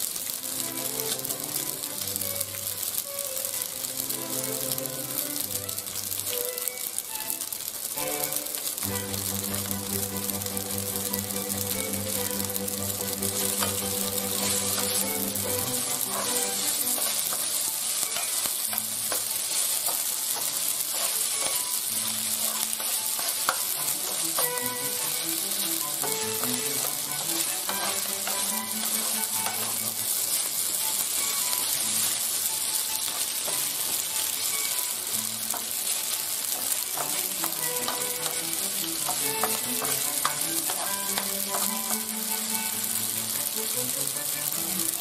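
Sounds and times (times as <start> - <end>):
pasta sizzling in oil: 0.0 - 45.0
wooden spoon scraping pan: 13.1 - 30.4.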